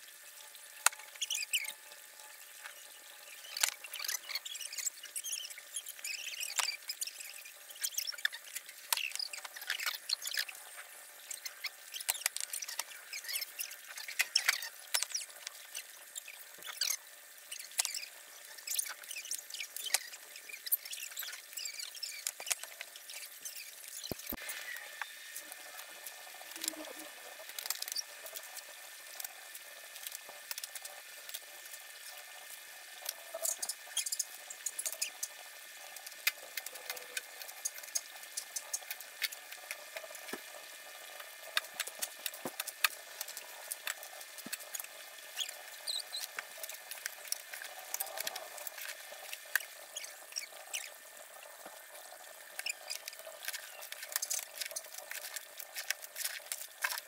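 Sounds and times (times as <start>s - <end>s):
water trickling and pattering: 0.0s - 57.0s
small irregular clicks: 25.4s - 31.8s, 52.4s - 57.0s.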